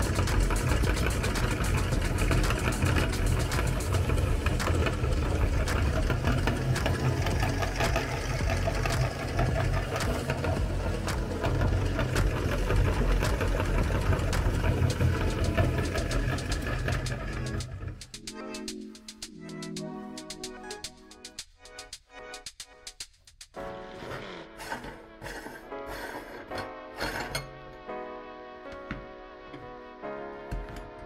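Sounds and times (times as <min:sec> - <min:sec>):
meat grinder humming: 0:00.0 - 0:18.0.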